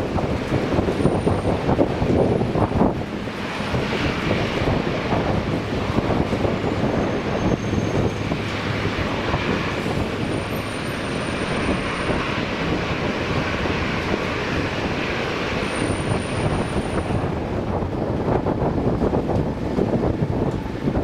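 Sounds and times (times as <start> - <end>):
jet engines rumbling at taxi: 0.0 - 21.0.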